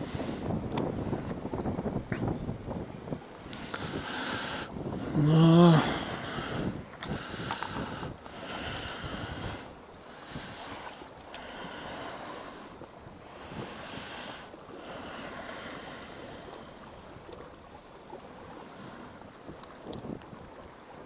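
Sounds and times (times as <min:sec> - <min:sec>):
waves washing against rocky shore: 0:00.0 - 0:21.0
wind on microphone: 0:00.0 - 0:21.0
faint clicks: 0:06.9 - 0:07.8, 0:10.7 - 0:11.7, 0:19.5 - 0:20.3.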